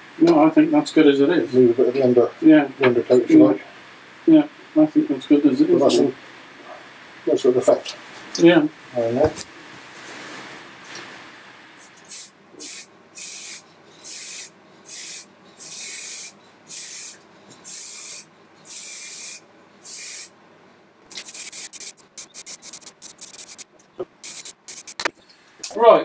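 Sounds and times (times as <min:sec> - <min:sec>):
aerosol can spraying: 0:11.8 - 0:20.3, 0:21.1 - 0:25.1.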